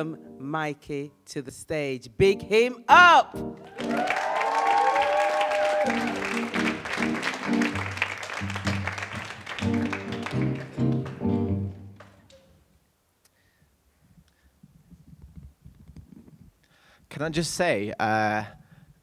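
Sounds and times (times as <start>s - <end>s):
audience applause: 3.6s - 12.2s
live band playing riff: 5.9s - 12.1s.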